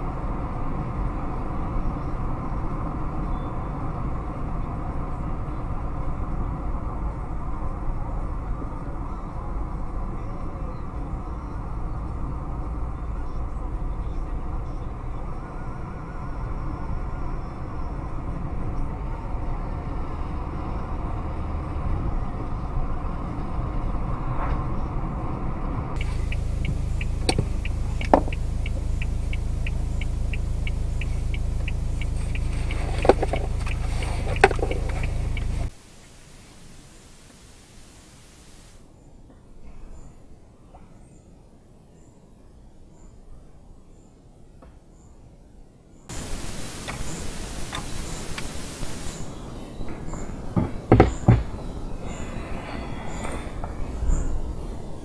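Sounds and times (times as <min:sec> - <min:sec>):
car engine and road rumble: 0:00.0 - 0:38.9, 0:46.1 - 0:55.0
regular ticking: 0:26.0 - 0:35.7
sharp knocks: 0:50.6 - 0:51.6.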